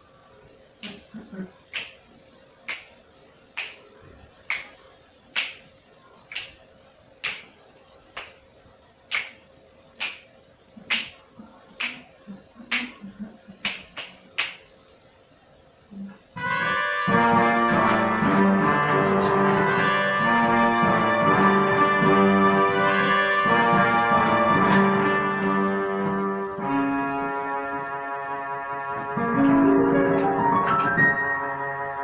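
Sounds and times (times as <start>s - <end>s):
faint steady hum: 0.0s - 32.0s
finger snaps: 1.7s - 2.0s, 2.7s - 2.9s, 3.6s - 3.8s, 4.5s - 4.7s, 5.4s - 5.6s, 6.3s - 6.6s, 7.2s - 7.5s, 9.1s - 9.4s, 10.0s - 10.2s, 10.9s - 11.2s, 13.6s - 14.6s.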